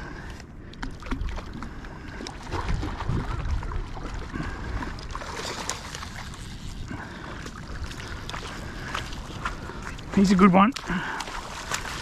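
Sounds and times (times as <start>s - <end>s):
fish splashing in water: 0.7s - 10.1s, 10.8s - 12.0s
wind buffeting microphone: 2.1s - 6.7s.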